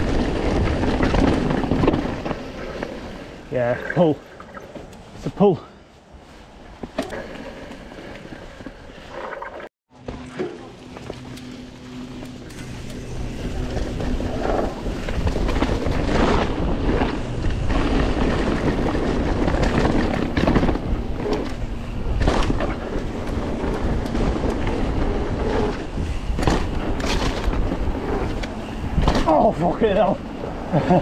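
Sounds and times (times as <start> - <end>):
tyres rolling on dirt: 0.0 - 5.6, 6.5 - 31.0
wind buffeting microphone: 11.2 - 31.0
bike landing thuds: 26.3 - 27.8.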